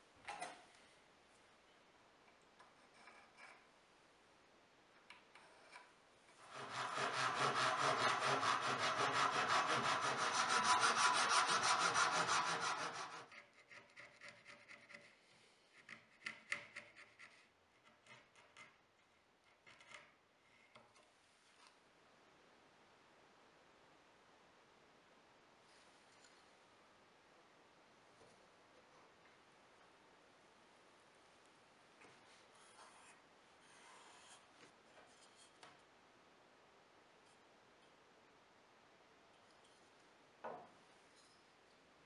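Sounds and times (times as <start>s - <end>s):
handsaw cutting wood: 6.4s - 13.3s.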